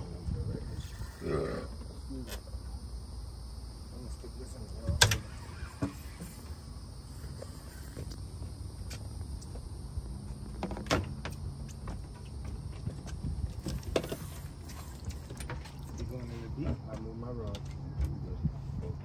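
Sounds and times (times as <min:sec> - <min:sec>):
low wind rumble on microphone: 0:00.0 - 0:02.1, 0:12.6 - 0:16.1, 0:16.7 - 0:19.0.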